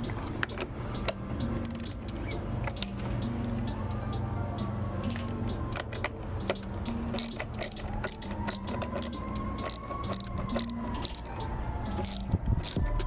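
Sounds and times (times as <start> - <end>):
background music with bass line: 0.0 - 13.0
screwdriver clicking and rattling: 0.4 - 2.9, 5.7 - 13.0.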